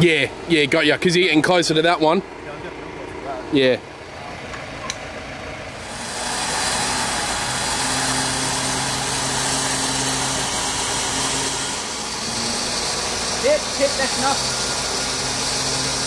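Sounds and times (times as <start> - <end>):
engine revving hard: 5.7 - 16.0.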